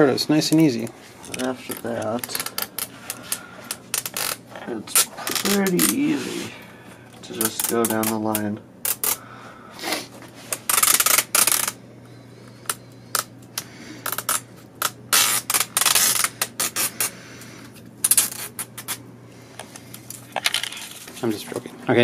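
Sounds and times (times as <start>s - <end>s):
hand handling: 0.5s - 9.2s
adhesive strips tearing off metal: 1.3s - 6.0s, 7.4s - 9.2s, 10.5s - 11.8s, 14.0s - 17.1s, 18.0s - 19.0s.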